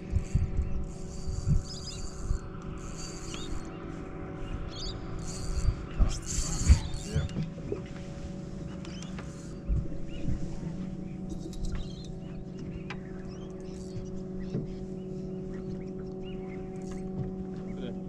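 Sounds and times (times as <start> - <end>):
fishing reel drag buzzing: 0.0 - 7.4, 8.3 - 10.4, 11.2 - 12.4, 13.0 - 15.2, 16.4 - 17.2.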